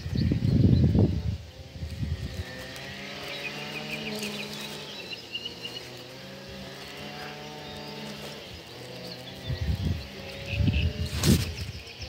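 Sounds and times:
wind gust on microphone: 0.0s - 4.9s, 9.3s - 12.0s
bird chirping: 0.0s - 12.0s
distant engine droning: 0.0s - 12.0s.

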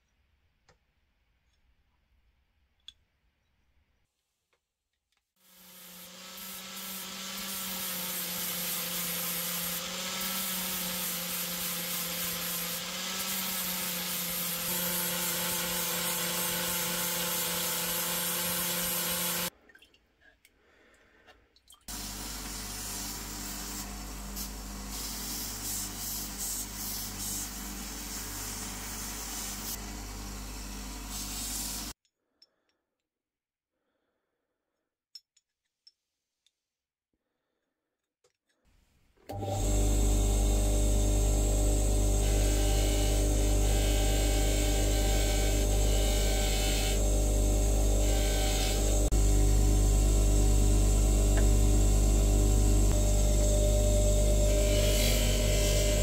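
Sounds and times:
angle grinder grinding steel: 5.4s - 19.5s, 41.0s - 56.0s
power tool with deep hum: 5.4s - 19.5s, 21.9s - 32.0s, 39.3s - 56.0s.

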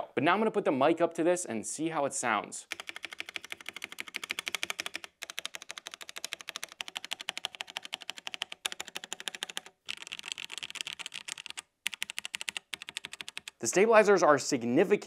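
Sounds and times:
mechanical keyboard keys clacking: 2.7s - 13.6s.

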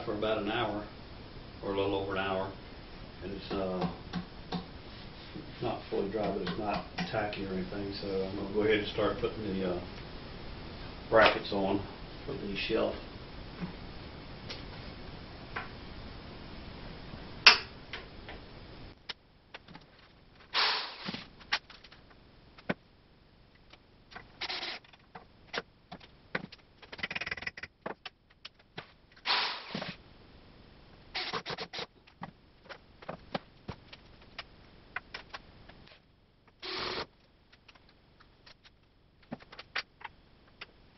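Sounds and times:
cordless drill driving screws: 20.5s - 21.2s, 24.4s - 24.8s, 29.2s - 30.0s, 31.2s - 31.8s, 36.6s - 37.1s.

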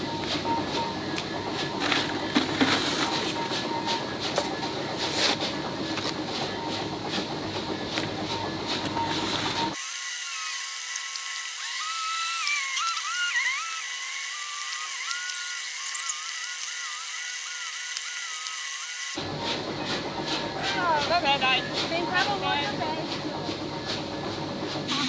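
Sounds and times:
shovel scraping gravel: 1.8s - 3.5s, 8.7s - 9.8s.

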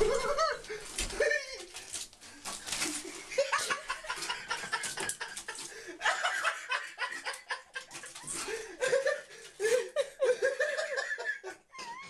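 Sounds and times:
person laughing: 0.0s - 1.7s.

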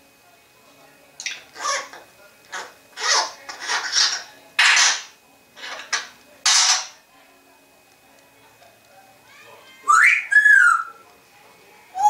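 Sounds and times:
parrot hissing: 2.6s - 5.0s.

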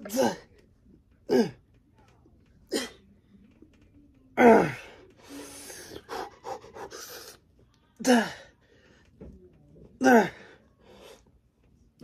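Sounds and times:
hard panting breaths: 4.8s - 7.5s.

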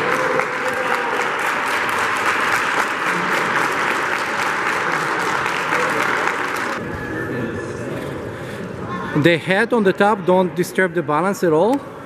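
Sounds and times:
crowd applauding: 0.0s - 6.8s.

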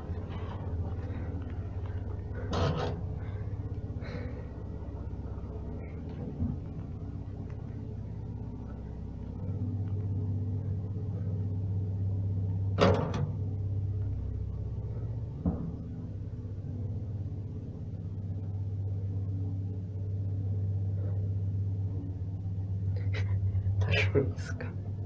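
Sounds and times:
lift low hum: 0.0s - 25.0s
lift door clunk: 12.7s - 13.4s.

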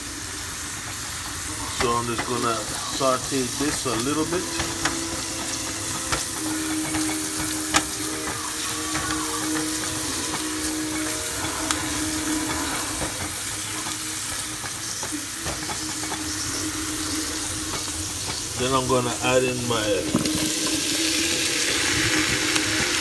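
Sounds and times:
onion sizzling in oil: 0.0s - 23.0s
spoon stirring in a pan: 0.8s - 18.7s
steady hum: 1.3s - 23.0s
spoon tapping against a pan: 1.9s - 16.4s.

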